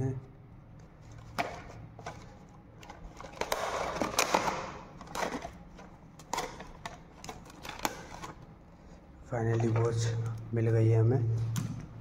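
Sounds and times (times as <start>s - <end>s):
packaging rustling: 1.0s - 10.4s.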